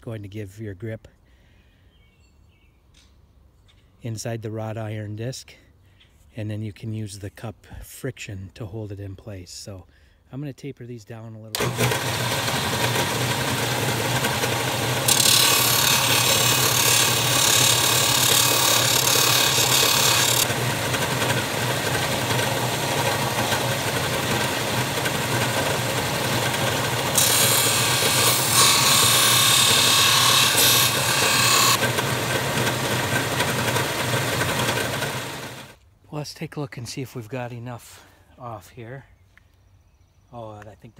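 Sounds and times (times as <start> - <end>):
plastic rasping on sanding disc: 11.6 - 35.7
sander motor hum: 11.6 - 35.8.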